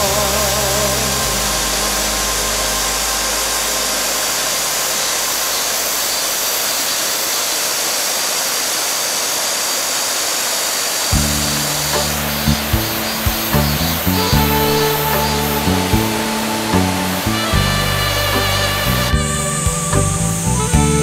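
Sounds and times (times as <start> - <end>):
song accompaniment: 0.0 - 6.0, 11.2 - 21.0
stream rushing: 0.0 - 21.0.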